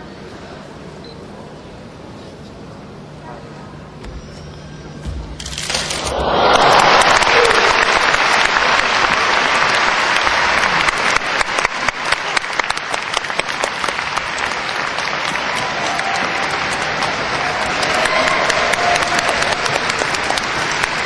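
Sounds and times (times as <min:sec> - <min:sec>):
audience applauding: 0:05.5 - 0:21.0.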